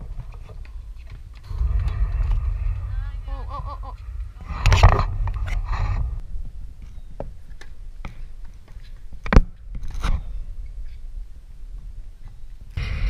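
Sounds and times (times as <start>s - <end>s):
low rumble: 0.6s - 8.0s, 12.8s - 13.0s.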